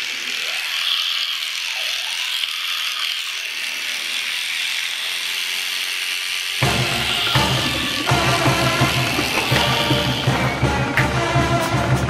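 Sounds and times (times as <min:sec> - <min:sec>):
electric toothbrush brushing teeth: 0:00.0 - 0:12.0.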